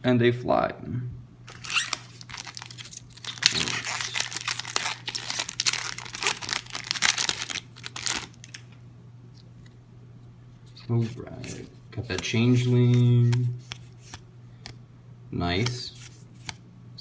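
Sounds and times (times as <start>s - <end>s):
foil wrapper crinkling: 1.5s - 8.8s.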